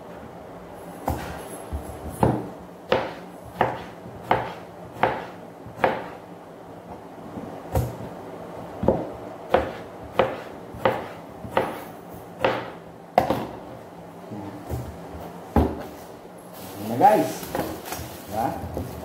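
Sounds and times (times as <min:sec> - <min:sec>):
knife chopping on cutting board: 0:01.0 - 0:01.4, 0:02.1 - 0:06.2, 0:08.8 - 0:13.6, 0:15.5 - 0:15.9.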